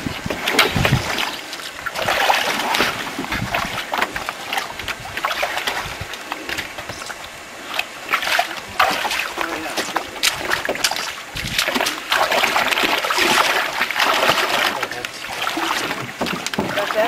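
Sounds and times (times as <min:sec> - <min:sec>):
knocks on canoe: 0:15.7 - 0:17.0.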